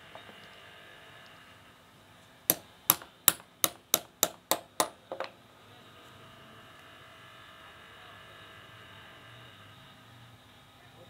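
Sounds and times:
hammer striking metal: 2.5s - 5.0s.

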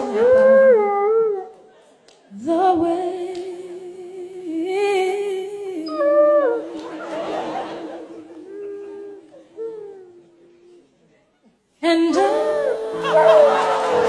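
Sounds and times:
dog howling: 0.0s - 1.6s, 13.0s - 14.0s.

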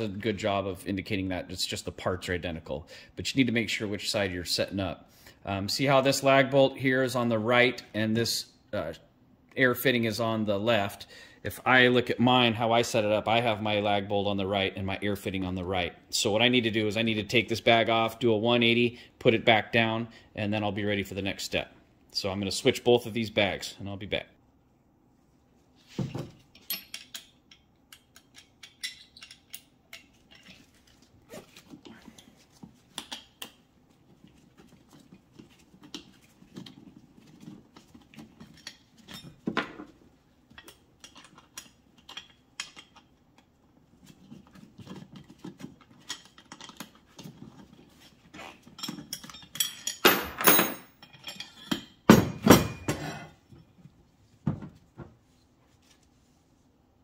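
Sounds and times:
steel brackets clinking: 26.5s - 30.6s, 48.7s - 53.2s.

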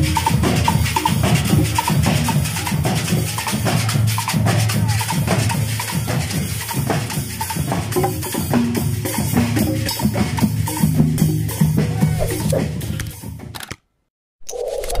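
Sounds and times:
congas: 0.0s - 13.3s
marching bass drums: 0.0s - 13.5s.

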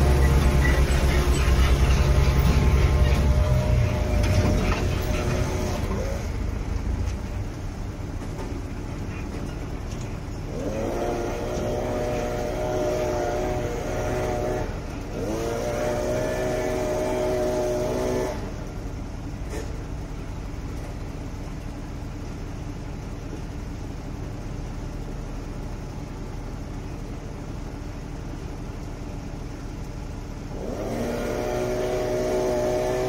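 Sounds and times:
engine revving: 0.0s - 6.8s, 10.5s - 18.6s, 30.5s - 33.0s
heavy vehicle engine rumbling: 0.0s - 33.0s.

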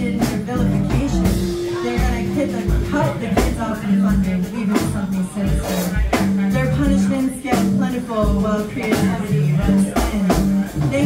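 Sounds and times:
drum kit hits: 0.0s - 11.0s
electric guitar: 0.0s - 11.0s
upright bass: 0.0s - 11.0s
melody line: 1.3s - 4.2s.

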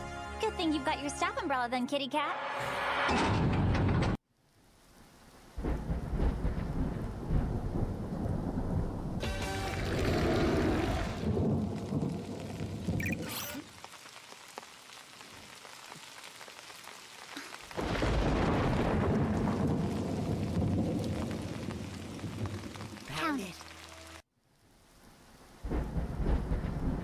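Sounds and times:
heavy rain: 4.4s - 27.0s
thunder rumbling and crashing: 5.6s - 13.3s, 17.7s - 23.2s, 25.6s - 27.0s.

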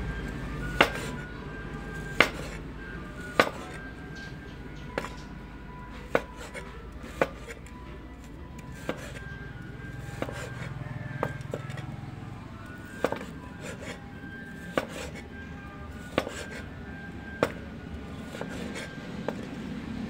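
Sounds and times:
cleaver chopping meat on wood: 0.8s - 1.2s, 2.0s - 2.6s, 3.2s - 3.8s, 5.0s - 5.3s, 6.0s - 9.3s, 10.0s - 11.8s, 12.8s - 14.0s, 14.6s - 15.2s, 16.0s - 16.6s, 17.4s - 17.6s, 18.2s - 19.4s.

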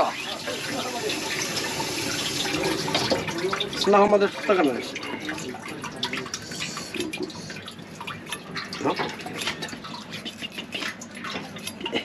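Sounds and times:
tap water running into sink: 0.0s - 12.0s.

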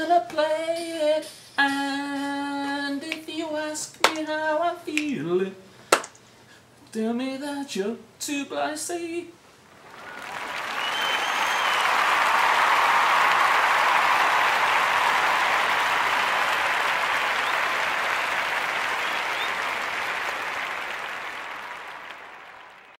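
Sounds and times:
audience applause: 9.7s - 23.0s.

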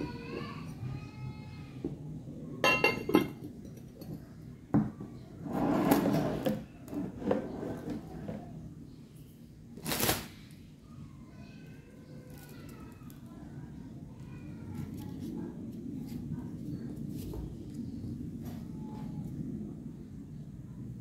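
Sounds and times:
glass lid clinking on dish: 2.6s - 3.4s
scraping and handling noises: 4.9s - 8.6s, 14.2s - 19.3s.

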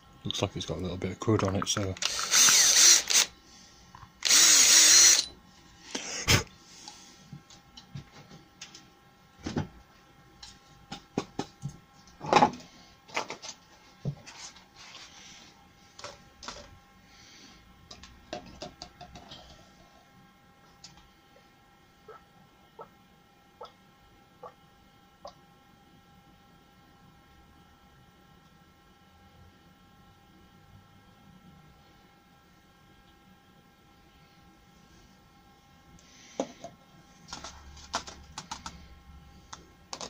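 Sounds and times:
cordless drill running: 2.0s - 3.3s, 4.2s - 5.3s.

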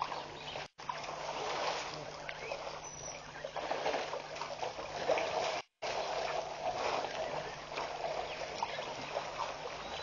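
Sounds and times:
water trickling and splashing: 0.0s - 10.0s.

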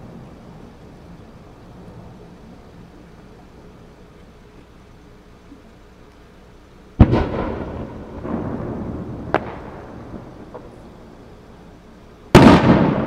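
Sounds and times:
rumble: 0.0s - 13.0s
firework crack: 6.9s - 13.0s
firework booms: 7.0s - 11.4s, 12.3s - 13.0s.

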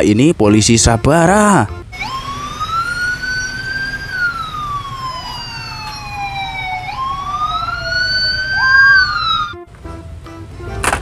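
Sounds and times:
police siren wailing: 1.9s - 9.7s.

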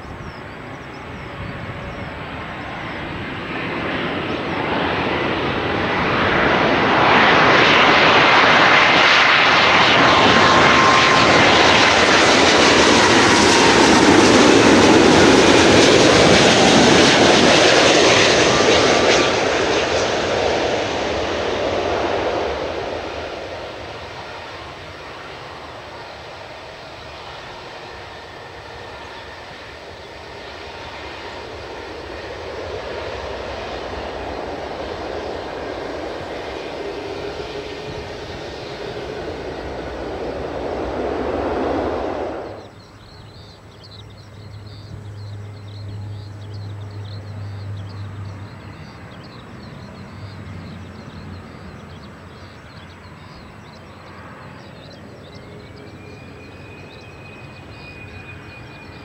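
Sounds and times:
distant jet on approach: 0.0s - 59.0s
jet engine landing rollout: 0.0s - 59.0s
faint rising whine: 33.0s - 43.1s.

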